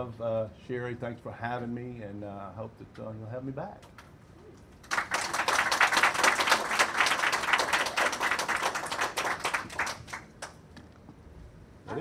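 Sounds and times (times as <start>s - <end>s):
audience applauding: 4.8s - 10.6s.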